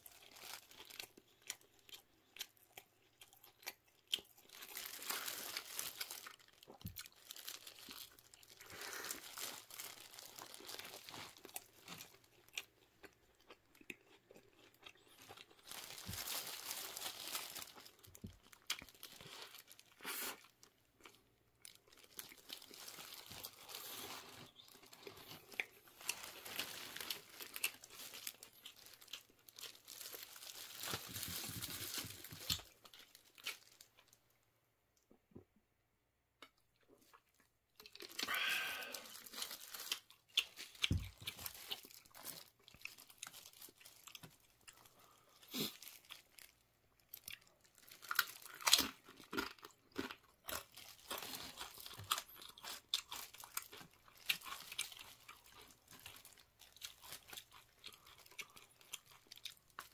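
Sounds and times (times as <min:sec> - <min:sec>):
chips crunching while chewed: 0:00.1 - 0:34.0, 0:37.8 - 0:59.9
paper wrapper crinkling: 0:04.5 - 0:12.2, 0:15.6 - 0:20.0, 0:21.6 - 0:34.2, 0:38.0 - 0:46.6.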